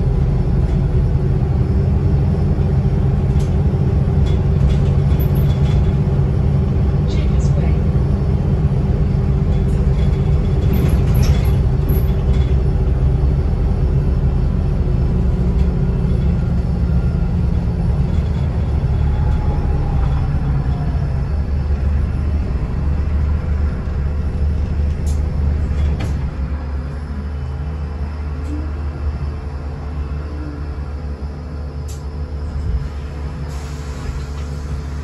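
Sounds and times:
bus engine and road rumble: 0.0 - 35.0
low droning hum: 0.0 - 35.0.

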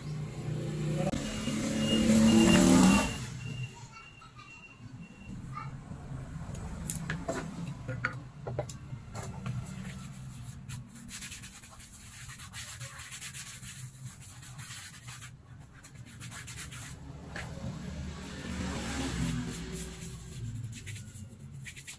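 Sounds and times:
hands rubbing foam sheet: 9.6 - 17.6, 19.1 - 21.9.

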